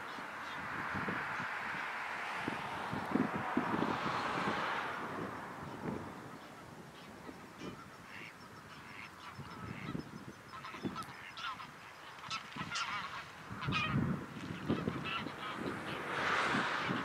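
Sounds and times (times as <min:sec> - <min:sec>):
geese honking: 0:00.0 - 0:02.5, 0:05.6 - 0:17.0
rush of noise: 0:14.5 - 0:17.0.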